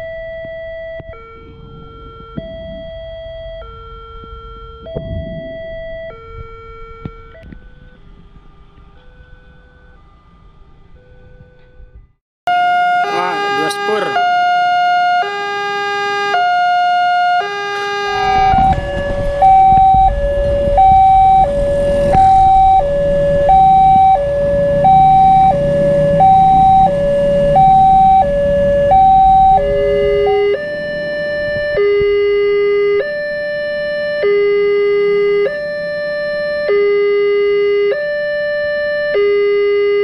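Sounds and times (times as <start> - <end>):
two-tone level crossing alarm: 0.0 - 11.8, 12.5 - 40.0
low rumble: 0.0 - 12.2, 16.9 - 36.4.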